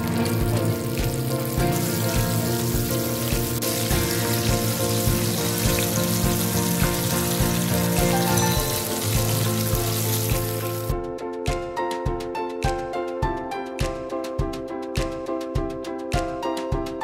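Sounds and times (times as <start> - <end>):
fish sizzling in hot oil: 0.0 - 10.9
background music with beat: 0.0 - 17.0.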